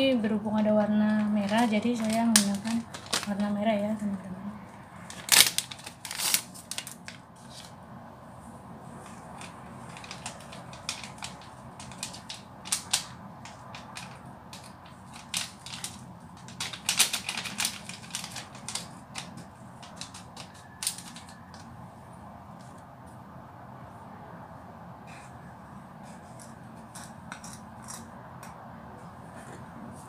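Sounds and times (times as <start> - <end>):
plastic sachet crinkling: 1.2 - 3.6, 5.0 - 7.7, 9.4 - 21.4.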